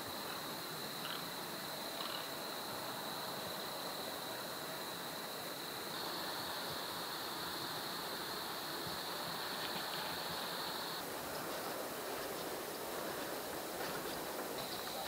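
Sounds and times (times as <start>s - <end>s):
even hiss: 0.0s - 15.0s.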